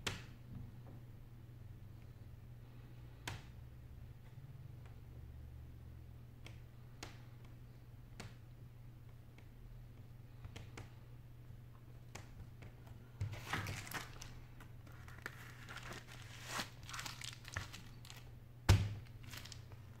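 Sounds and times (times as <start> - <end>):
bubble wrap crinkling: 13.2 - 20.0.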